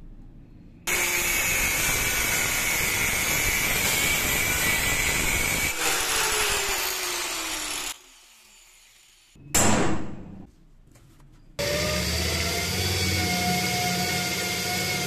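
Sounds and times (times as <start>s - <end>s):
angle grinder cutting steel bolt: 0.9s - 9.3s.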